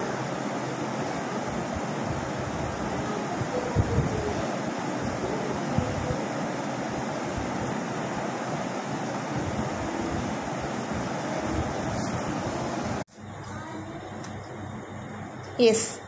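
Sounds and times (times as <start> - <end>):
wind rushing on microphone: 1.4 - 13.0.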